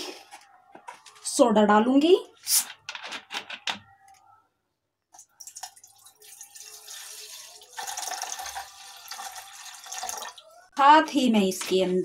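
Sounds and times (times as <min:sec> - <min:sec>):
soda water pouring into metal pot: 0:05.4 - 0:10.6.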